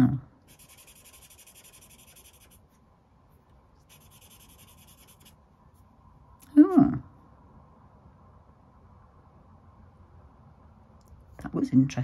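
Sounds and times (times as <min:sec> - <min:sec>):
marker scratching on paper: 0:00.4 - 0:02.8, 0:03.4 - 0:05.4.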